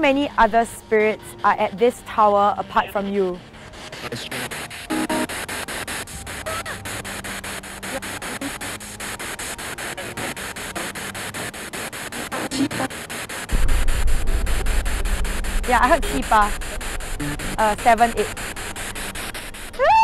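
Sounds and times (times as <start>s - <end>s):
radio static sweeping: 4.2s - 20.0s
low rumble: 13.5s - 20.0s.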